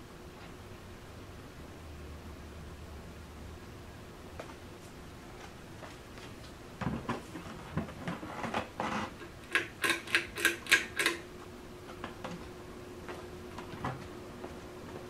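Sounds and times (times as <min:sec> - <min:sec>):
fan motor humming: 0:00.0 - 0:15.0
pull-chain switch clicks: 0:09.5 - 0:11.2.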